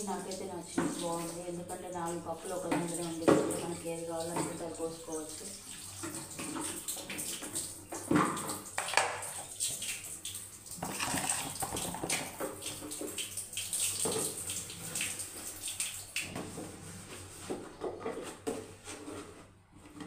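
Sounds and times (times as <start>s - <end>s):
tap water splashing: 0.0s - 1.4s, 2.0s - 16.6s.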